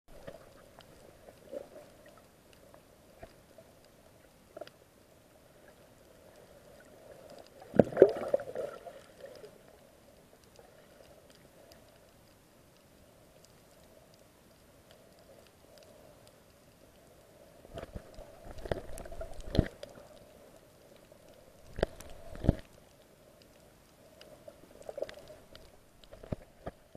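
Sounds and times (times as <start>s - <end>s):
muffled underwater hiss: 0.1s - 26.9s
small clicks: 10.1s - 26.9s.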